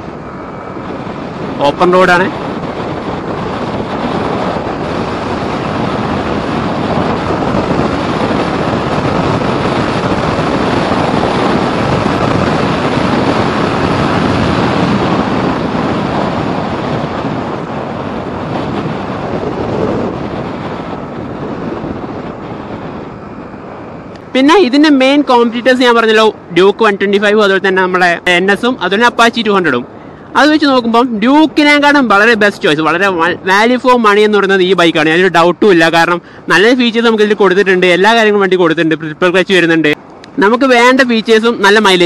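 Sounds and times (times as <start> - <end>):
motorcycle engine at speed: 0.0 - 25.8
wind rush on microphone: 0.0 - 42.0.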